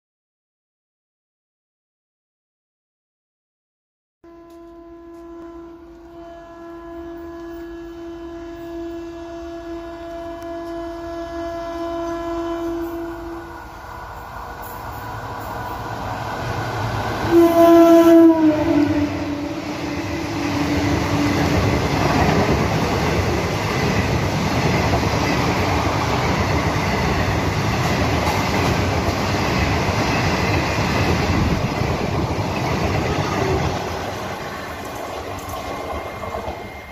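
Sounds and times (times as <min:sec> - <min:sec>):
train horn blast: 0:04.2 - 0:13.8, 0:17.2 - 0:22.7
train rumbling and clacking past: 0:07.0 - 0:36.9.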